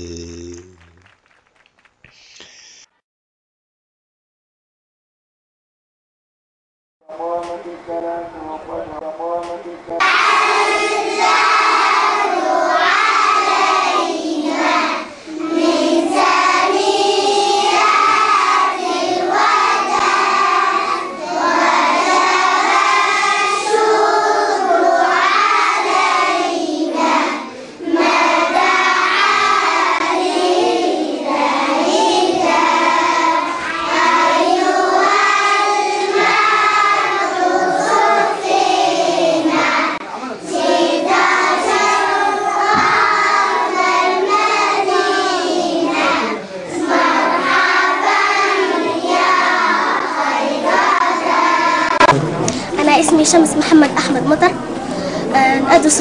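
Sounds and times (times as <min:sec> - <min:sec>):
children singing in chorus: 0:10.0 - 0:52.2.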